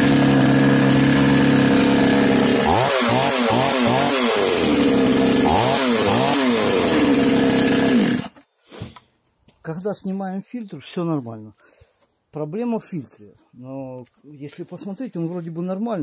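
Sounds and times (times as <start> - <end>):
chainsaw engine idling and revving: 0.0 - 8.4.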